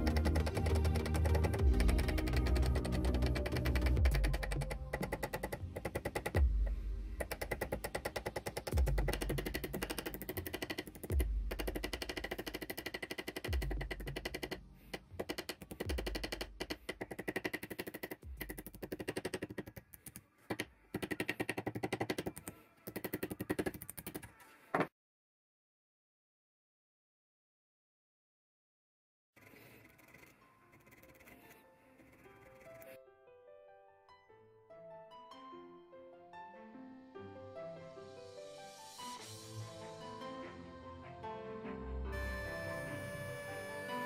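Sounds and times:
background music with low beat: 0.0s - 12.4s, 13.5s - 14.7s, 15.9s - 16.7s, 18.2s - 19.2s.

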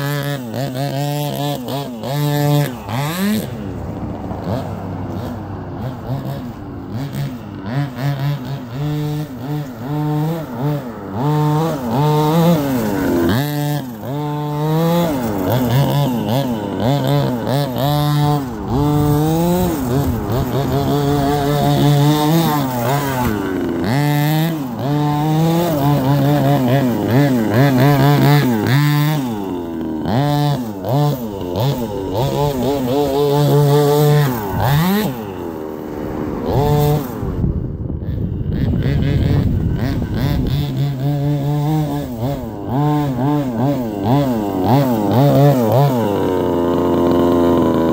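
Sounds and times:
rc truck engine revving: 0.0s - 47.9s.

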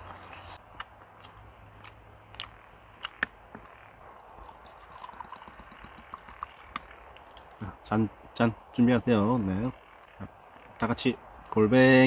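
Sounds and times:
liquid trickling into cup: 4.1s - 7.5s.

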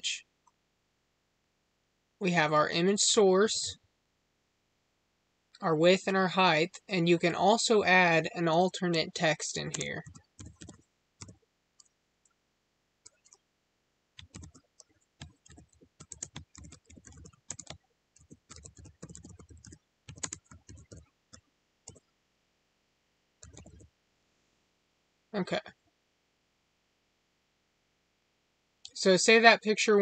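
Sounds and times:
keyboard key clicks: 9.7s - 11.4s, 14.2s - 22.0s.

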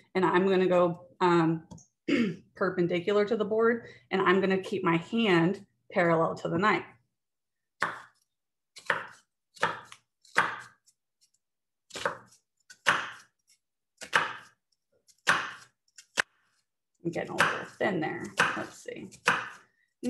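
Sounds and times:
knife cutting onion on wooden board: 7.8s - 19.8s.

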